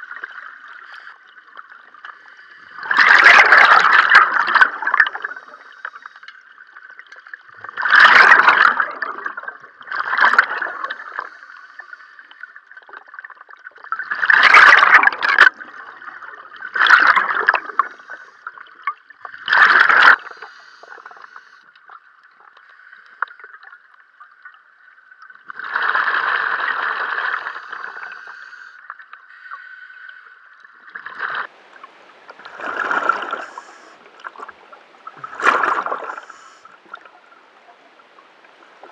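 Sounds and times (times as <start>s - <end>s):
bubbles gurgling from regulator: 1.6s - 5.7s, 6.8s - 11.3s, 12.9s - 20.3s, 30.9s - 38.9s
faint steady hum: 31.5s - 38.9s.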